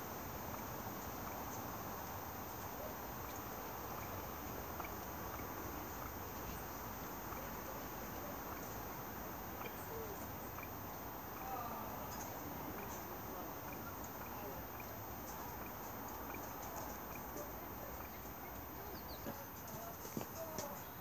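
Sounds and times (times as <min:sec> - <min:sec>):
outdoor background hiss: 0:00.0 - 0:21.0
faint bird chirps: 0:09.5 - 0:10.8, 0:11.4 - 0:21.0.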